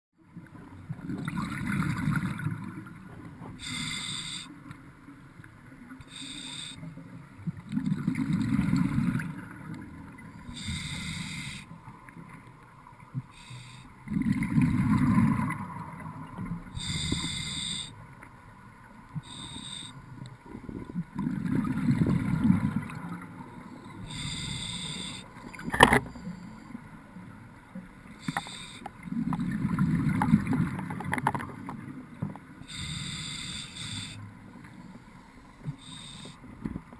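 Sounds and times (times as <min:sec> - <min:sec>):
exhaled bubbles rumbling: 0:00.8 - 0:03.0, 0:07.6 - 0:10.2, 0:14.1 - 0:17.0, 0:20.5 - 0:23.6, 0:29.0 - 0:31.9
regulator hiss on inhale: 0:03.6 - 0:04.8, 0:06.0 - 0:07.1, 0:10.4 - 0:11.8, 0:13.3 - 0:14.1, 0:16.7 - 0:18.0, 0:19.2 - 0:20.3, 0:23.7 - 0:27.1, 0:28.1 - 0:29.1, 0:32.6 - 0:36.9.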